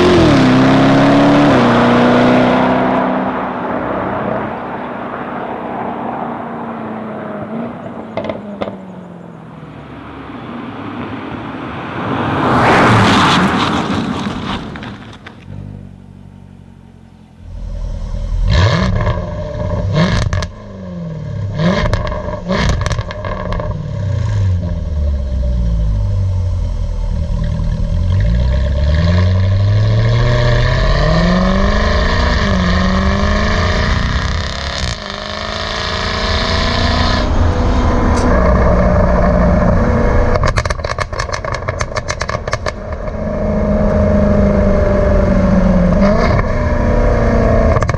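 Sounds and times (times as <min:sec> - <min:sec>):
sports car engine revving: 0:00.0 - 0:05.8, 0:06.7 - 0:09.0, 0:15.5 - 0:47.9
exhaust pops and crackles: 0:08.1 - 0:08.8, 0:13.7 - 0:15.6, 0:40.3 - 0:43.2, 0:47.7 - 0:47.9.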